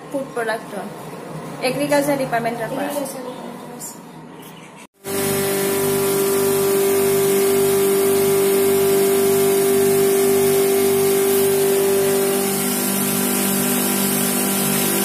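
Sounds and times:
grinding mill humming: 5.0 - 15.0.

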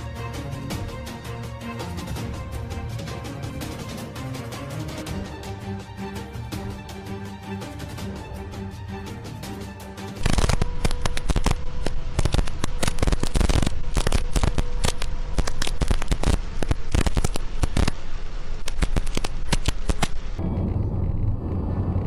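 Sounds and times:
music track: 0.0 - 14.6.

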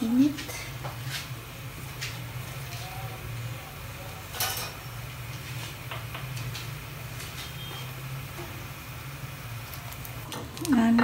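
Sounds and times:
electric grill humming: 0.0 - 11.0
pops and ticks of roasting: 4.3 - 11.0.

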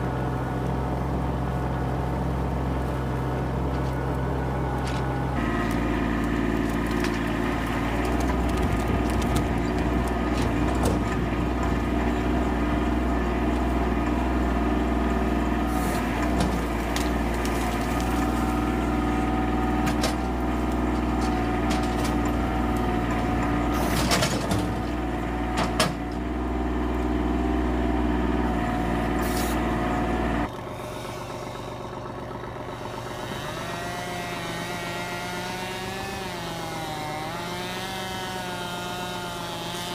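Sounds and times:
diesel tractor engine running: 0.0 - 39.9
branches snapping: 4.8 - 11.0, 15.8 - 23.0.

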